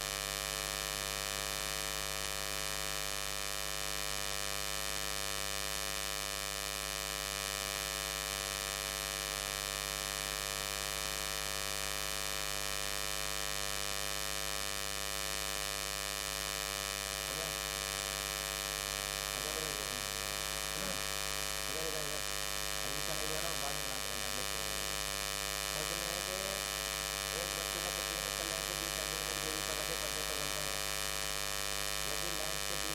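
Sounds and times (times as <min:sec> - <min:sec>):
electrical hum and buzz: 0:00.0 - 0:32.9
faint voices: 0:20.8 - 0:21.0.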